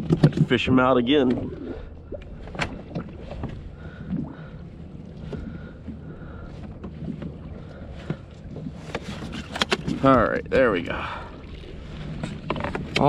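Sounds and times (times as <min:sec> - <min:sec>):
knocks and scrapes on plastic kayak: 0:00.0 - 0:01.5, 0:06.7 - 0:10.2, 0:11.9 - 0:13.0
wind and water rumble: 0:00.0 - 0:13.0.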